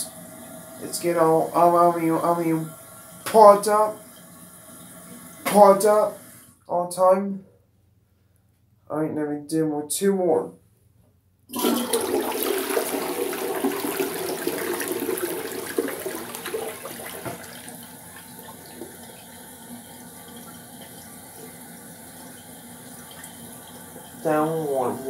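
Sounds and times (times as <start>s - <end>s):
toilet flushing: 0.0s - 6.6s, 11.5s - 25.0s
water running: 0.0s - 6.6s, 11.5s - 25.0s.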